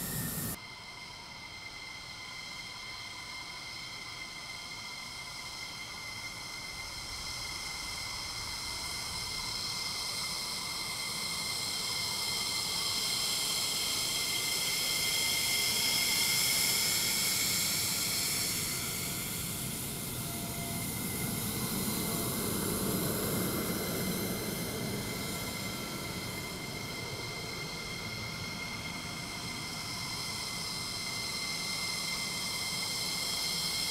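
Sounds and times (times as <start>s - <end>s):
jet rushing hiss: 0.0s - 0.6s, 14.8s - 32.0s
jet turbine whine: 0.0s - 33.9s.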